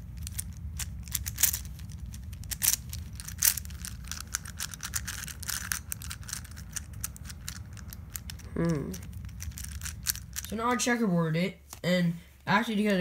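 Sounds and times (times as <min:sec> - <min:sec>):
plastic puzzle clicking: 0:00.2 - 0:10.5.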